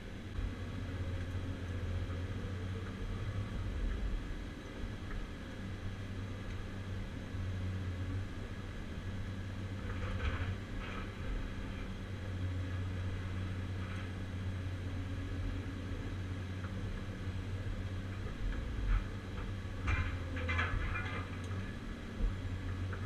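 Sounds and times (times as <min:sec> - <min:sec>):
diesel engine droning: 0:00.0 - 0:23.0
metallic clanks and crunches: 0:09.8 - 0:11.2, 0:18.2 - 0:21.8.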